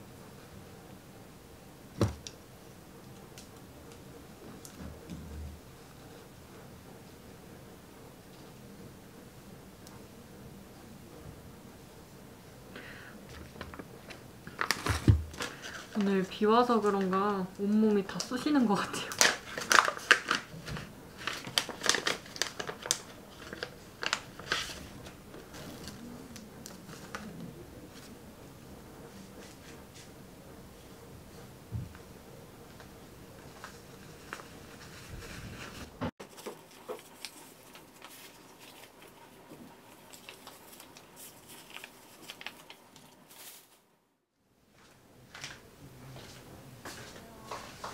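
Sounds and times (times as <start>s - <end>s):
plastic wrapping crinkling: 13.3s - 17.5s, 18.1s - 28.1s, 33.4s - 43.9s.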